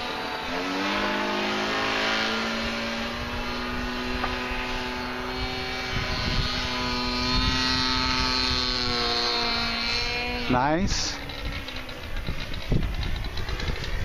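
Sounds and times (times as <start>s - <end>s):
model plane engine flying overhead: 0.0s - 14.0s.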